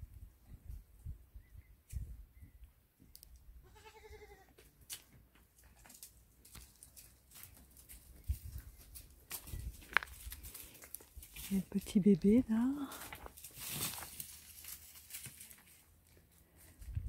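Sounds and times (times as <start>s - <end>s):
goat bleating: 3.6s - 4.5s.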